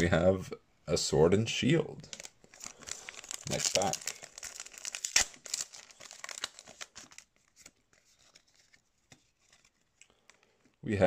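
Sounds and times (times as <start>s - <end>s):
foil wrapper crinkling and tearing: 2.0s - 10.6s
cards rustling and ticking: 2.0s - 10.8s.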